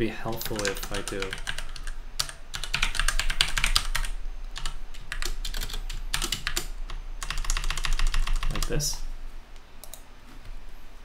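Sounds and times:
typing on computer keyboard: 0.3s - 8.8s.

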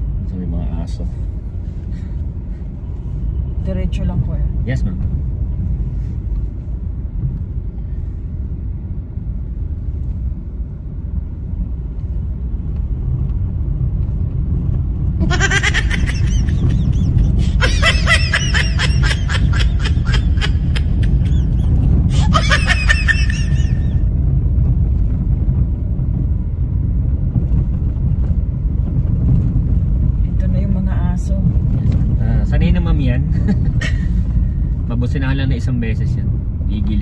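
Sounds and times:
car cabin road and engine rumble: 0.0s - 37.0s
person laughing: 15.2s - 24.0s.

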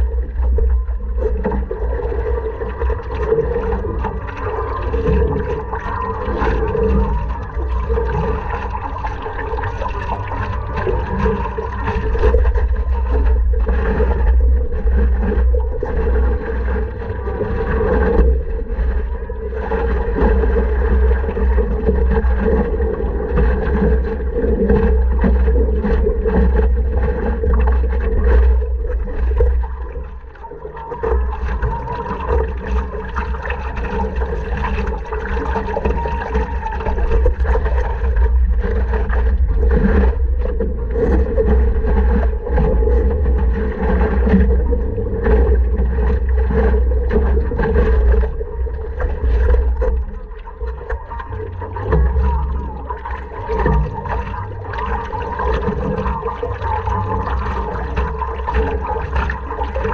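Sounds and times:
low wind rumble on microphone: 0.0s - 59.9s
paddle strokes: 0.0s - 59.9s
water splashing around paddleboard: 0.0s - 59.9s.

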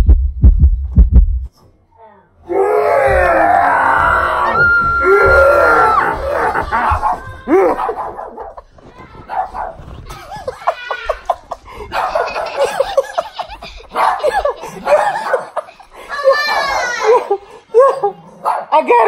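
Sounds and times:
excited voices: 2.5s - 18.2s
people laughing: 3.1s - 8.9s, 10.0s - 18.2s
dog barking: 7.0s - 8.6s, 9.3s - 9.8s, 11.9s - 12.9s, 13.9s - 15.6s, 17.8s - 18.8s.

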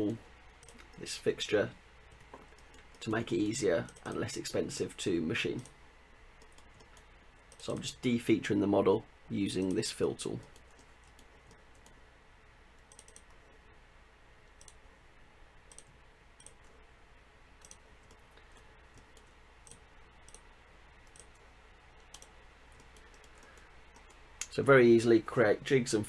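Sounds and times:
low room hiss: 0.0s - 26.0s
computer mouse clicks: 0.5s - 1.1s, 2.1s - 3.1s, 3.8s - 4.2s, 6.4s - 8.0s, 10.4s - 12.0s, 12.9s - 13.4s, 14.5s - 14.8s, 15.7s - 16.8s, 17.6s - 21.4s, 22.0s - 24.5s.

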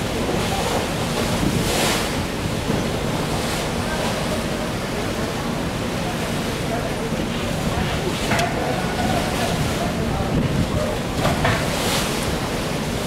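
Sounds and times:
sea swell washing against hulls: 0.0s - 13.0s
wind buffeting microphone: 0.8s - 3.3s, 7.6s - 12.8s.

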